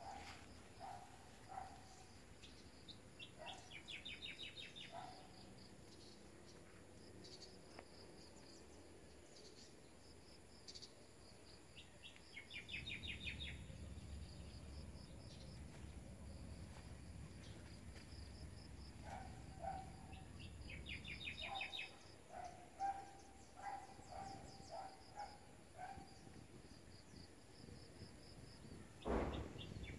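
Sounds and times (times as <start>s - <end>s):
birds chirping: 0.8s - 6.6s, 19.0s - 26.3s.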